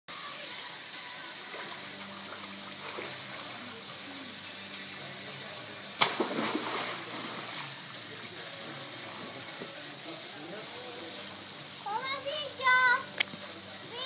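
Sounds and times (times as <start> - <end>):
water spilling over pool edge: 0.2 - 14.0
churning water: 1.3 - 10.3
splash into pool: 6.0 - 7.8.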